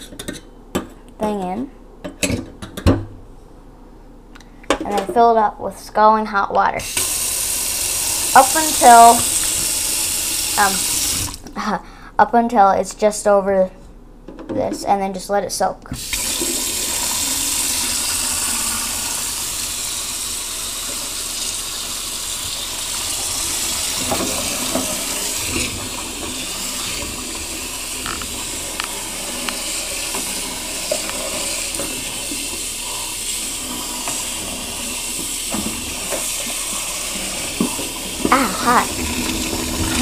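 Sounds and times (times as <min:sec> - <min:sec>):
faucet water running into sink: 0:06.8 - 0:11.5, 0:16.0 - 0:40.0.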